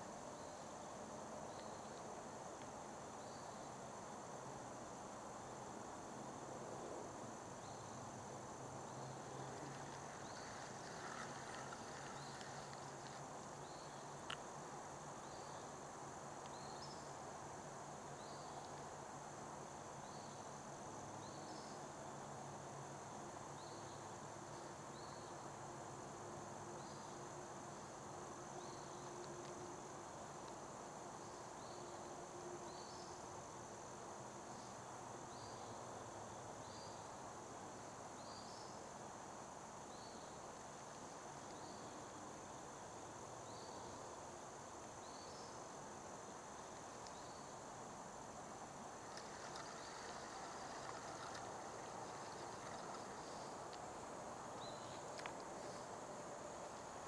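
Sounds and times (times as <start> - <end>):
insect chirps: 0.0 - 57.0
insect high drone: 0.0 - 57.0.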